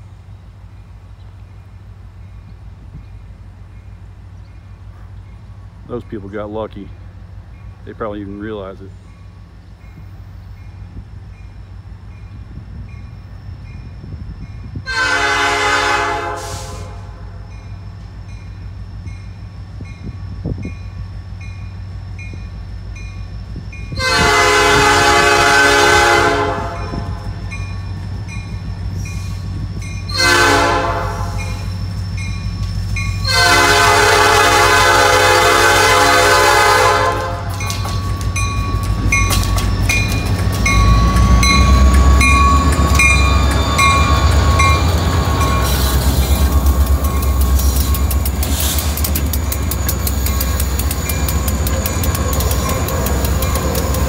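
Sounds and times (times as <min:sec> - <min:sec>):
diesel engines rumbling: 0:00.0 - 0:54.0
locomotive air horn blasts: 0:14.8 - 0:17.5, 0:24.0 - 0:27.2, 0:30.1 - 0:31.6, 0:33.2 - 0:37.8
crossing bell ringing: 0:26.1 - 0:35.5, 0:37.2 - 0:54.0.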